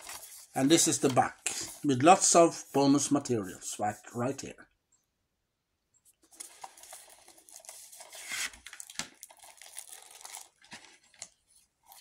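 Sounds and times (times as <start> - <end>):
packaging rustling and crinkling: 0.0 - 1.9, 6.2 - 12.0.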